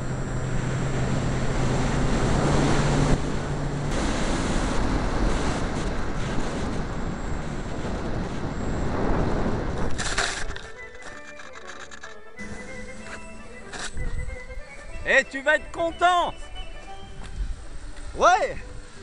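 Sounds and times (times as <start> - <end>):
wind rush: 0.0 - 10.6
low motor hum: 0.0 - 15.1
propeller noise: 0.0 - 19.0.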